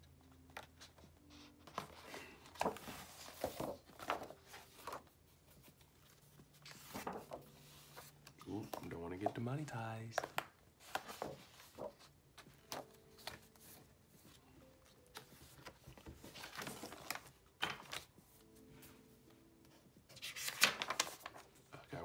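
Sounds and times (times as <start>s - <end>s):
paper pages turning: 0.4s - 18.6s, 19.7s - 21.8s.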